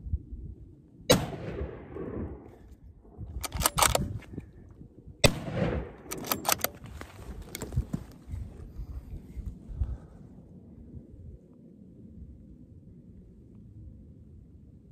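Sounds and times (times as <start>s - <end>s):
rifle shots with echo: 1.1s - 2.5s, 5.2s - 6.8s
rifle bolt metallic clicks: 3.4s - 4.2s, 6.0s - 6.9s.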